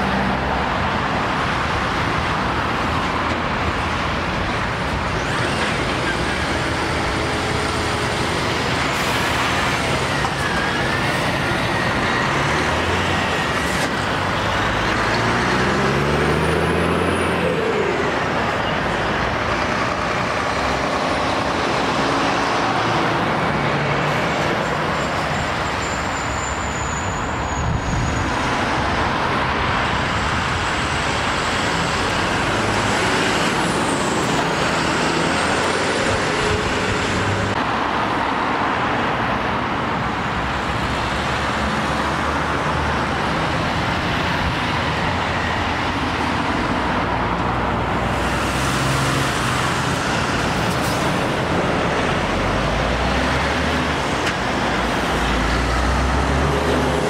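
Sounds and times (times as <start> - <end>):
lorry diesel engine: 0.0 - 57.0
road traffic passing: 0.0 - 57.0.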